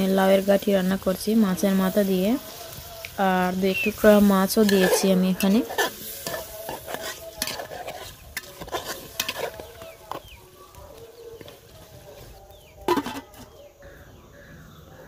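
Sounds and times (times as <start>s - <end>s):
oil sizzling: 0.0s - 10.8s
metal spatula scraping pot: 3.4s - 10.4s, 11.4s - 13.6s.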